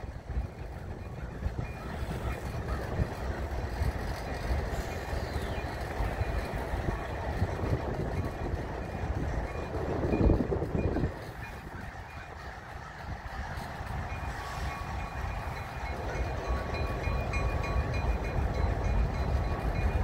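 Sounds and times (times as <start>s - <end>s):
locomotive engine rumble: 0.0s - 20.0s
train wheels rolling: 0.0s - 20.0s.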